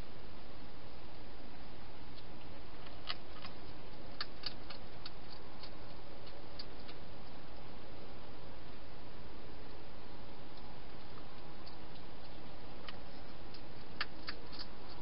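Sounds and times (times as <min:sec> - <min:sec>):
hedgehog chewing food: 0:02.1 - 0:08.2, 0:09.6 - 0:15.0.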